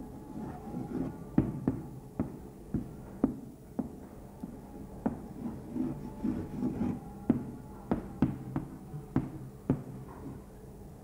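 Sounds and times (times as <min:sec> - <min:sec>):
chalk scraping on blackboard: 0:05.4 - 0:07.0.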